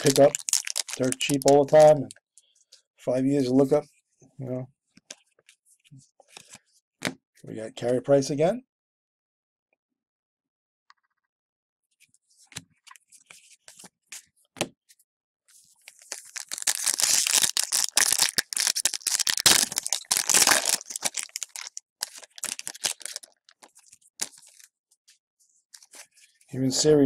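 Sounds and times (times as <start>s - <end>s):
plastic wrapper crinkling: 0.0s - 2.2s, 15.7s - 24.7s.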